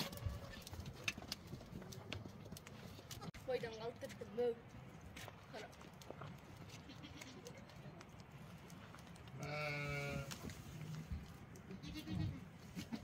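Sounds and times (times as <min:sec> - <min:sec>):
goat bleating: 0:06.7 - 0:07.6, 0:09.4 - 0:10.4, 0:11.6 - 0:13.0.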